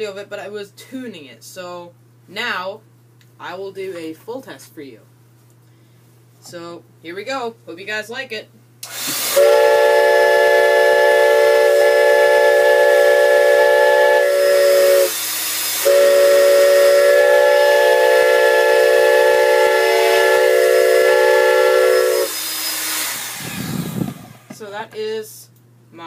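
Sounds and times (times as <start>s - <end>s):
steam whistle chord blasts: 9.2s - 23.4s
lingering low whistle note: 15.8s - 22.4s.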